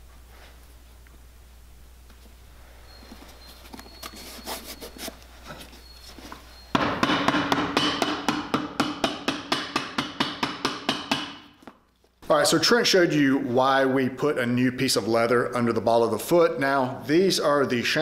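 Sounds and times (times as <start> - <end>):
soft handling sounds: 2.0 - 6.7, 11.7 - 12.3
hammer tapping leather: 6.8 - 11.8.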